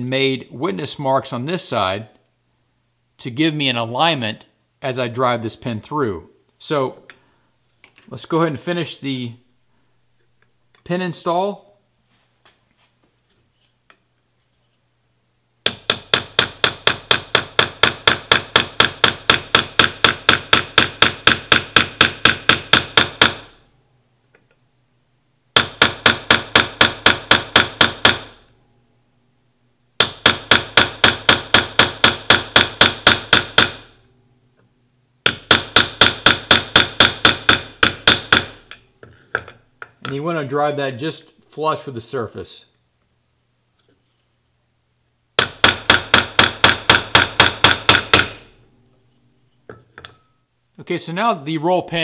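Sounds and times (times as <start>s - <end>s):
hammer tapping metal punch: 15.6s - 23.5s, 25.6s - 28.4s, 30.0s - 33.9s, 35.2s - 40.2s, 45.4s - 48.5s, 49.7s - 50.4s.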